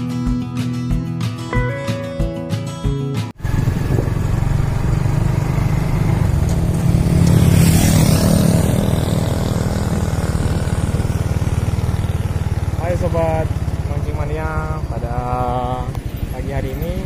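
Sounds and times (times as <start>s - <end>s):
rush of wind noise: 3.4s - 5.0s
motorcycle engine running: 3.4s - 17.0s.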